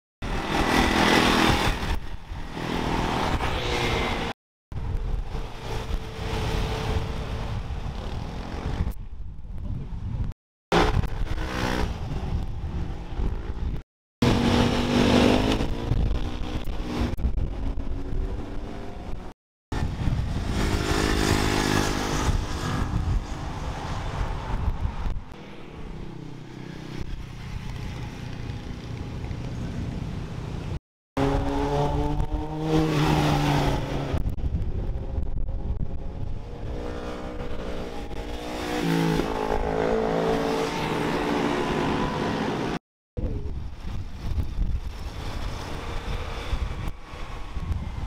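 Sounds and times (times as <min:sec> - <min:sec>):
racing engines accelerating: 0:31.2 - 0:34.2.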